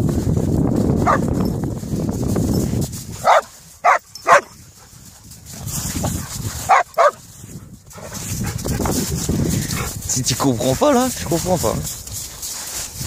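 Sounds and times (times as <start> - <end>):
dog barking sharply: 3.2 - 4.5, 6.7 - 7.2.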